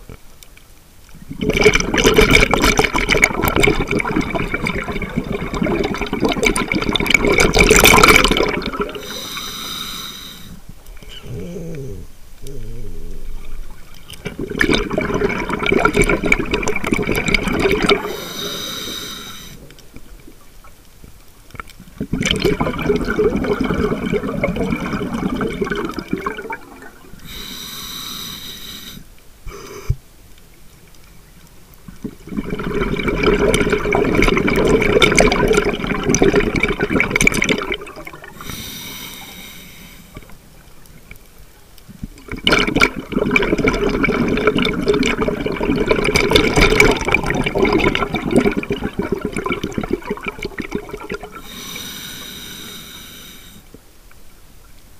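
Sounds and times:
exhaled bubbles rushing: 0:01.3 - 0:09.3, 0:12.5 - 0:19.7, 0:22.0 - 0:27.4, 0:32.0 - 0:38.4, 0:42.3 - 0:51.6
regulator inhale hiss: 0:09.0 - 0:10.7, 0:18.0 - 0:19.7, 0:27.2 - 0:30.0, 0:38.3 - 0:40.3, 0:51.4 - 0:53.7.

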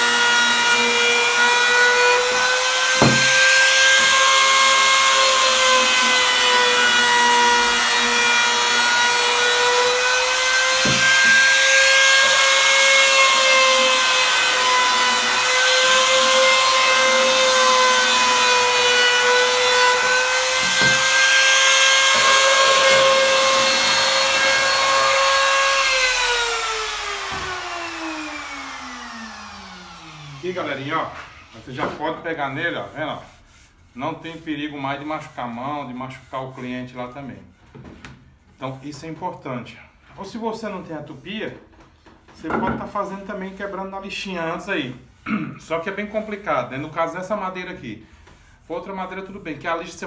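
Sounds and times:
trim router whining: 0:00.0 - 0:30.8
router winding down: 0:21.9 - 0:30.4.

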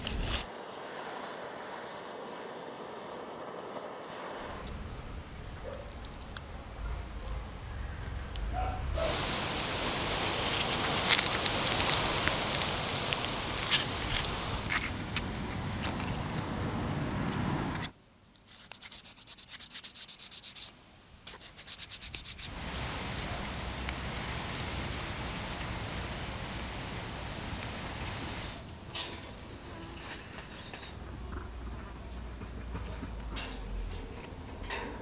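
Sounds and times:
stick rubbing strokes: 0:00.0 - 0:00.5, 0:18.4 - 0:20.7, 0:21.3 - 0:22.5
steady hiss: 0:00.0 - 0:17.9, 0:18.8 - 0:35.0
aluminium foil crinkling: 0:10.4 - 0:16.7.

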